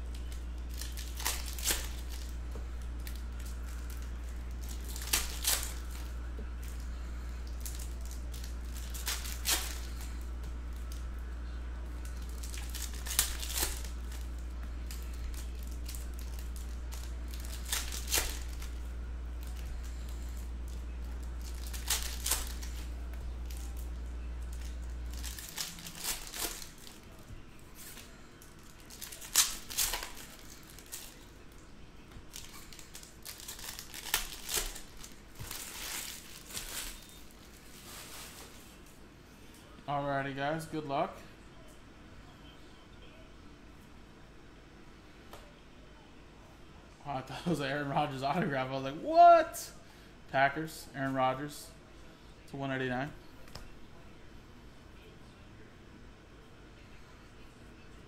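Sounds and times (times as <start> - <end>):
foil wrappers crinkling: 0.0 - 38.9
steady low hum: 0.0 - 58.0.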